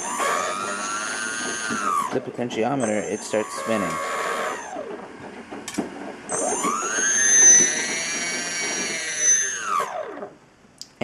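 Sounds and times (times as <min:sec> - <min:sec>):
electric motor whine: 0:00.0 - 0:05.1, 0:06.1 - 0:10.4
high whistle: 0:06.3 - 0:10.0.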